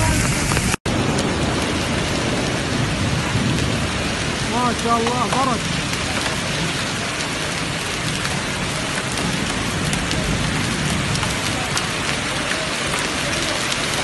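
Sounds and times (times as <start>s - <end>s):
close raindrops ticking: 0.0s - 14.0s
heavy rain on paving: 0.0s - 14.0s.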